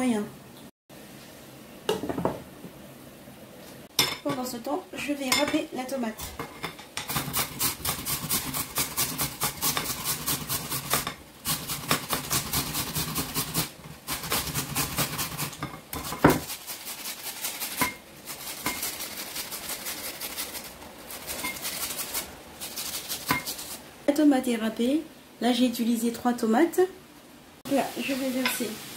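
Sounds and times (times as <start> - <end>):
tomato scraping on metal grater: 7.1 - 23.8.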